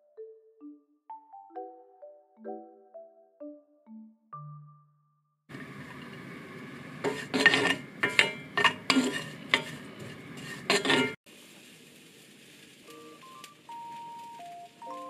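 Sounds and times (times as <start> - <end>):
oil sizzling: 5.5 - 15.0
spatula scraping a skillet: 7.0 - 11.2.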